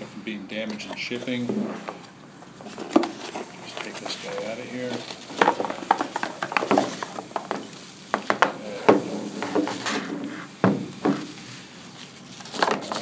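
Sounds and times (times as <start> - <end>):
plastic wrap rustling: 0.9 - 13.0
objects knocking on table: 5.4 - 11.4.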